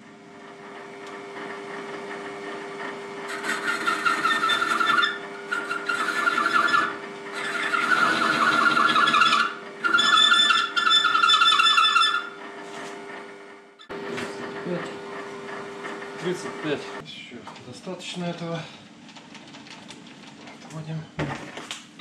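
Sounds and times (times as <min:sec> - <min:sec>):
lathe motor hum: 0:00.0 - 0:17.1
cutting tool screeching: 0:03.2 - 0:12.4.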